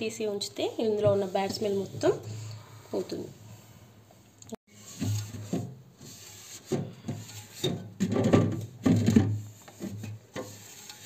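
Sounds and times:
cloth wiping plastic shelf: 0:04.7 - 0:11.0.

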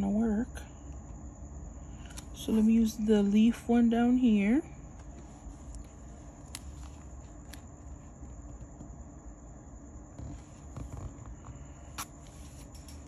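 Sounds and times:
low steady hum: 0:00.0 - 0:13.0
tape and paper handling: 0:05.0 - 0:08.0.

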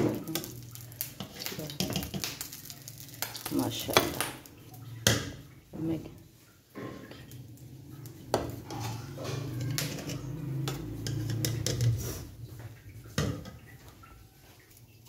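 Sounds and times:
metal spoon scraping metal pot: 0:08.3 - 0:12.3.

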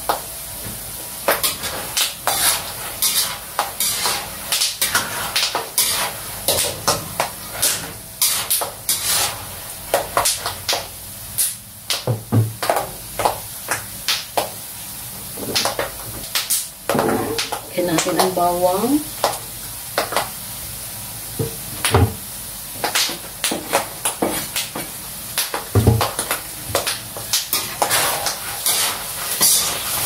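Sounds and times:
frying hiss: 0:00.0 - 0:30.0
spatula scraping a wok: 0:01.3 - 0:10.2, 0:26.8 - 0:30.0.

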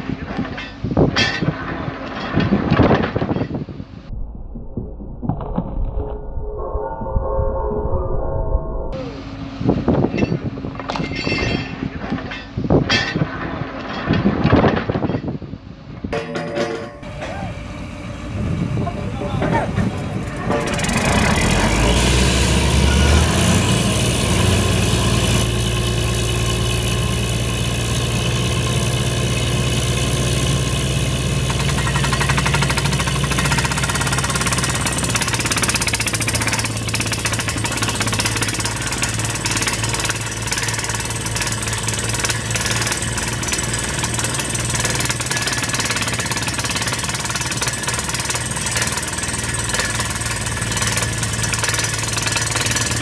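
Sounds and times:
diesel engine droning: 0:16.2 - 0:45.3
rapid drill hammering: 0:31.4 - 0:53.0.

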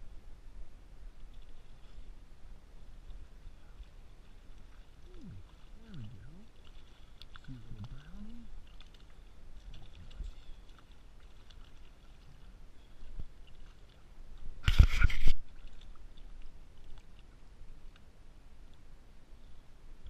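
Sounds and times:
brief water splashing: 0:14.6 - 0:17.2.

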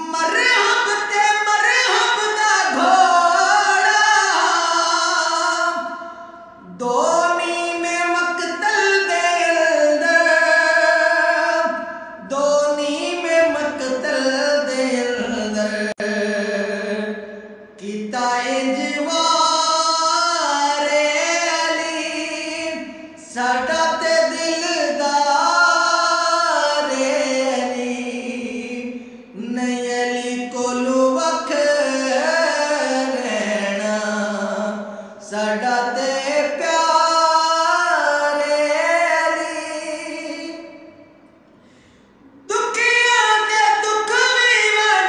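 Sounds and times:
man singing devotional poem: 0:00.0 - 0:41.1, 0:42.4 - 0:45.0.

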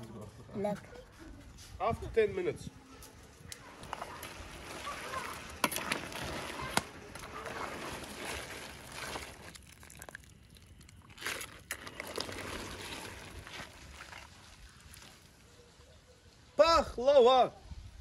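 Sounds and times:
water boiling and bubbling: 0:03.7 - 0:15.5
metal ladle stirring: 0:03.8 - 0:14.6.

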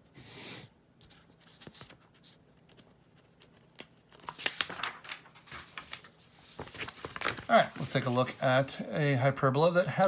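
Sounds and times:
paper rustling and crinkling: 0:01.0 - 0:08.9.

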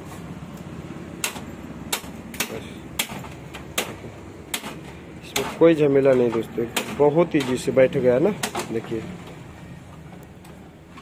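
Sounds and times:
sharp metallic knocks: 0:01.2 - 0:08.9.

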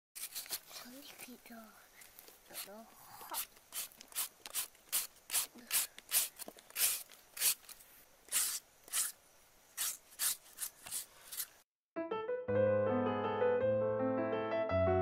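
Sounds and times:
peeler scraping mango: 0:00.2 - 0:00.7, 0:02.5 - 0:11.6.

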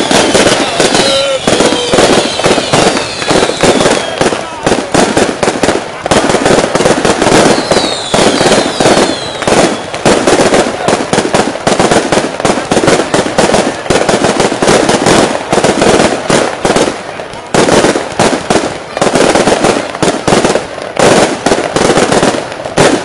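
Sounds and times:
falling firework whistles: 0:00.0 - 0:05.2, 0:07.0 - 0:10.6
fireworks bangs and crackles: 0:00.0 - 0:23.0.

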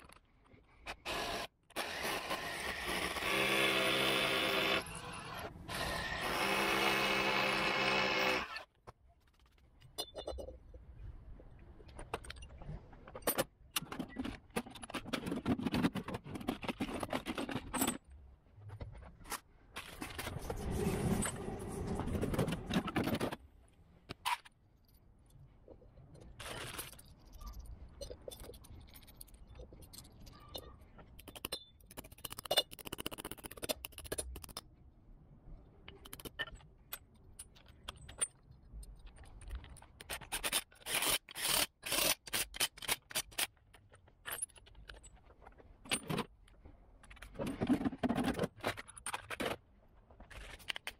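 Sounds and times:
metal tools clinking and scraping: 0:09.8 - 0:10.8.

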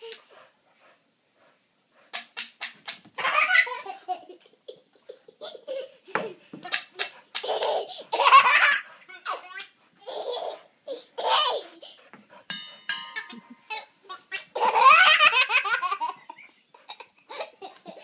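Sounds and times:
toddler laughing: 0:03.2 - 0:12.0, 0:13.3 - 0:18.0.

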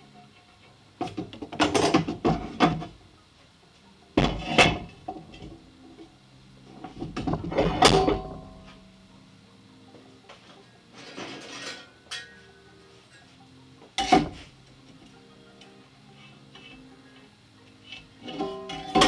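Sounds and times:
steel angle iron clanking: 0:11.0 - 0:12.5, 0:18.2 - 0:19.0.

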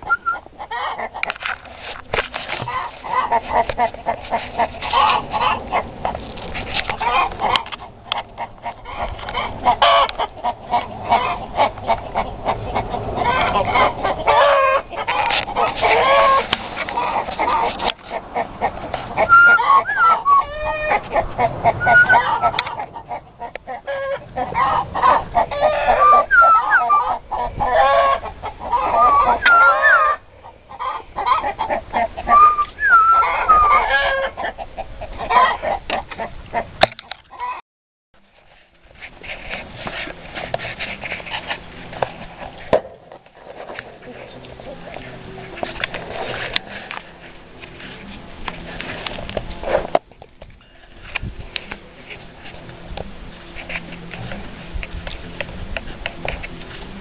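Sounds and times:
chickens clucking: 0:00.0 - 0:37.6.

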